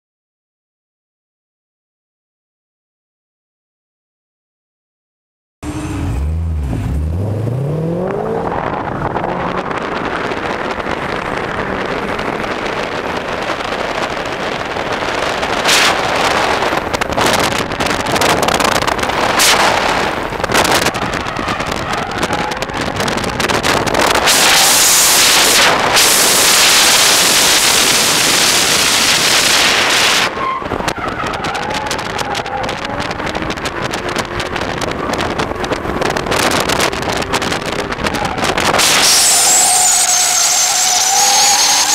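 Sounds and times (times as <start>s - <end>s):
car engine revving hard: 5.6s - 30.4s
wind and road noise: 5.6s - 41.9s
tyres squealing: 38.0s - 41.9s.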